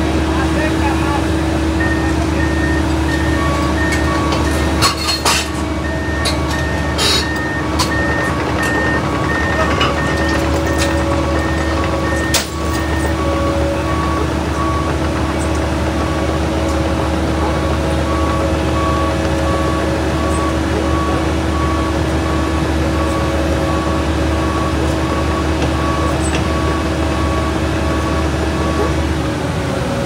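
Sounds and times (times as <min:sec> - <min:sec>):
heavy diesel machinery running: 0:00.0 - 0:30.0
backup alarm beeping: 0:01.8 - 0:04.8, 0:05.8 - 0:15.0, 0:18.0 - 0:28.9.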